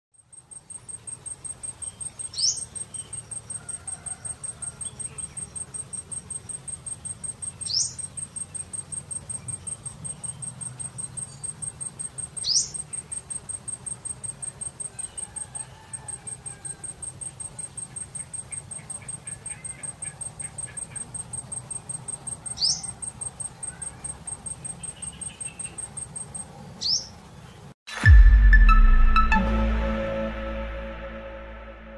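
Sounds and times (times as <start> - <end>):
insect chirping high ticks: 0.2 - 27.1
loud music: 27.9 - 31.9.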